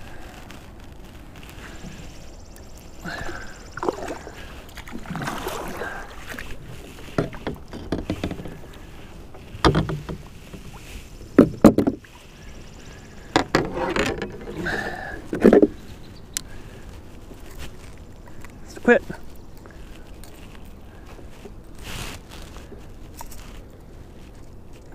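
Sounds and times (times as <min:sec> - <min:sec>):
water sloshing: 0:00.2 - 0:23.5
fish splashing: 0:02.6 - 0:07.7
knocks on kayak: 0:09.6 - 0:10.3, 0:11.4 - 0:12.1.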